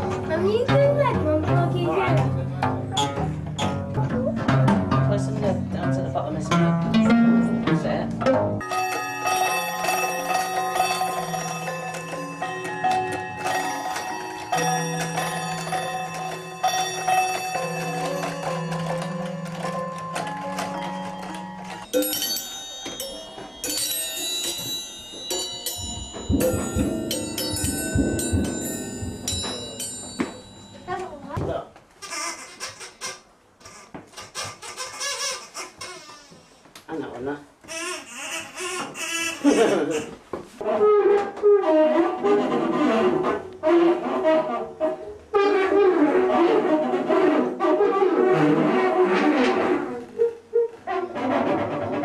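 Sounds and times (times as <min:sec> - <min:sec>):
hanging metal cutlery ringing: 0:08.6 - 0:31.4
dull low thumps: 0:25.8 - 0:30.4.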